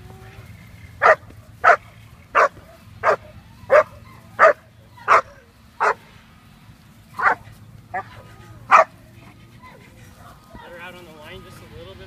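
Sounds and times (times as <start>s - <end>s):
puppy barking: 1.0s - 6.0s, 7.2s - 9.0s.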